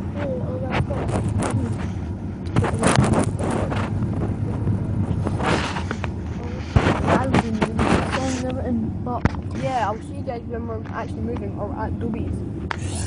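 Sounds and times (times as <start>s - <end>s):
microphone handling rustles: 0.0s - 11.5s
steady low rumble: 0.0s - 13.0s.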